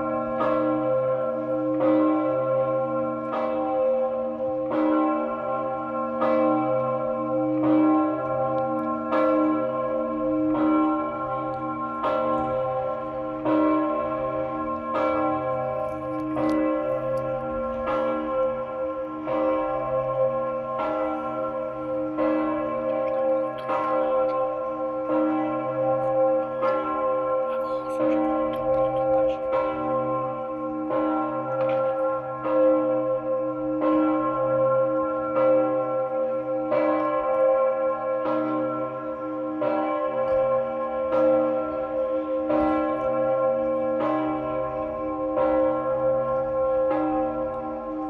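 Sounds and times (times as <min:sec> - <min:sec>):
large church bell ringing: 0:00.0 - 0:48.0.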